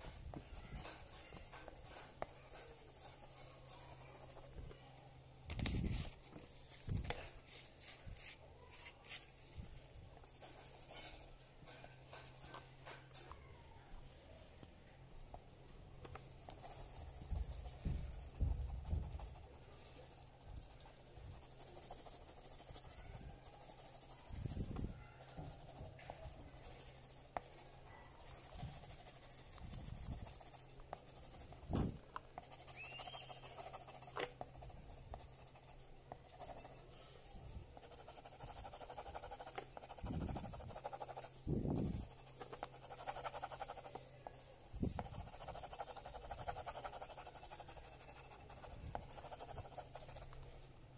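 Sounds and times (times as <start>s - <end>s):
coloured pencil scratching paper: 0.0s - 4.5s, 10.2s - 13.1s, 16.2s - 50.4s.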